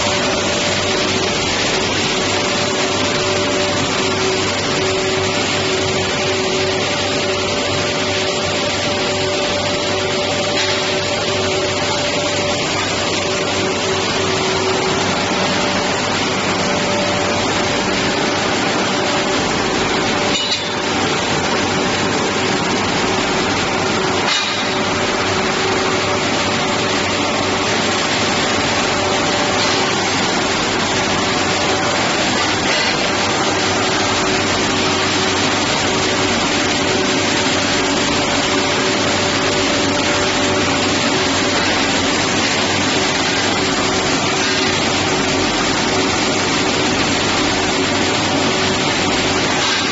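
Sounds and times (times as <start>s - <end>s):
constant humming tones: 0.0s - 49.9s.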